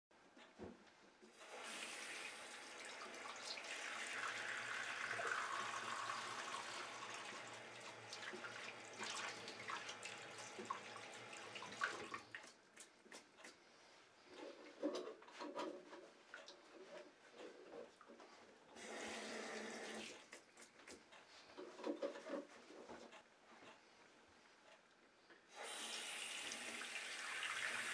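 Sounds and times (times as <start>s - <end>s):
faucet running: 1.4s - 12.2s, 18.8s - 20.2s, 25.6s - 27.9s
hands washing under water: 8.2s - 13.6s.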